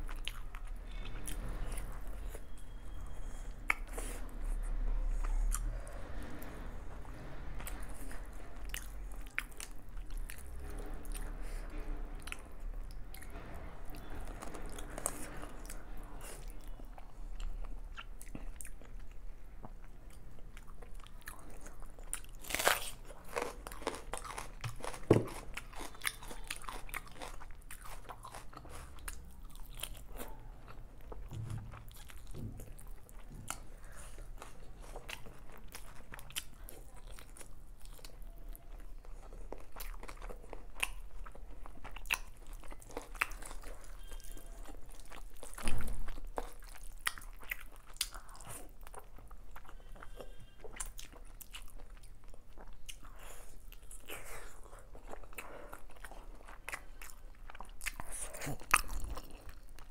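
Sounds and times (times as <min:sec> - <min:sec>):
wet chewing and mouth clicks: 0:16.4 - 0:59.9
crunchy onion bite: 0:22.4 - 0:30.0.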